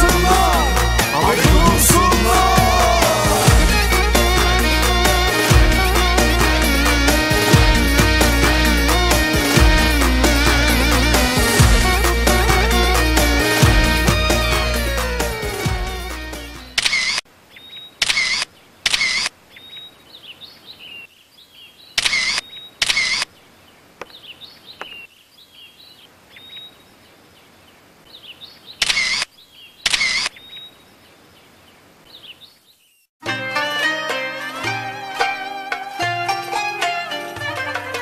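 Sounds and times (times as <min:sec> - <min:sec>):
music: 0:00.0 - 0:16.8, 0:33.2 - 0:38.0
camera shutter clicks: 0:16.8 - 0:17.2, 0:18.0 - 0:19.3, 0:22.0 - 0:23.3, 0:28.8 - 0:29.3, 0:29.9 - 0:30.4.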